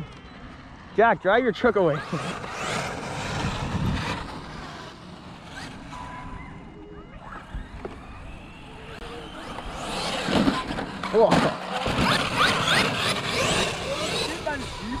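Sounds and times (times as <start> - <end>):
rc truck motors whining: 0.0 - 15.0
steady rushing noise: 0.9 - 5.9.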